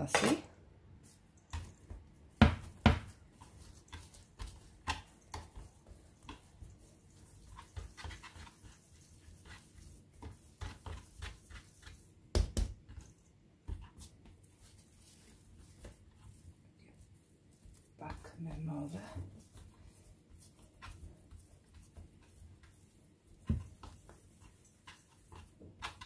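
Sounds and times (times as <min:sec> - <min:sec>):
dough tapping on wooden board: 0:02.4 - 0:03.2, 0:12.3 - 0:12.9.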